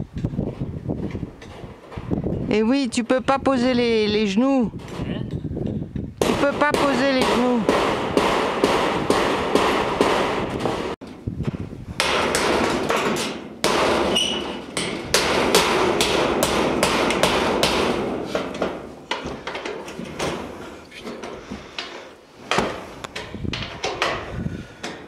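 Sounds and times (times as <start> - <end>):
hammer on metal roofing: 6.2 - 11.0, 12.0 - 20.6.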